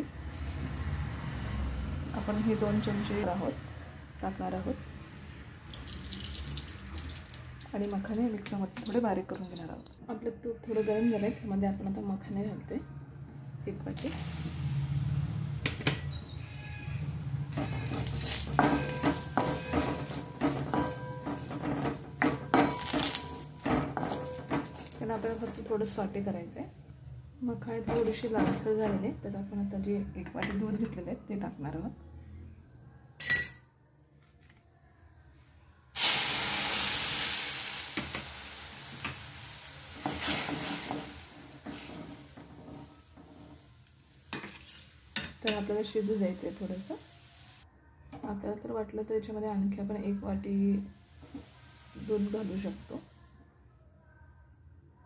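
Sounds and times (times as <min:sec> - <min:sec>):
light sizzle: 0:05.7 - 0:10.0, 0:14.0 - 0:29.6, 0:36.0 - 0:47.7, 0:50.5 - 0:53.2
utensil scraping and knocking pan: 0:17.5 - 0:26.0, 0:27.8 - 0:29.0, 0:44.4 - 0:44.9
metal pan ringing: 0:17.6 - 0:25.0, 0:33.2 - 0:33.6.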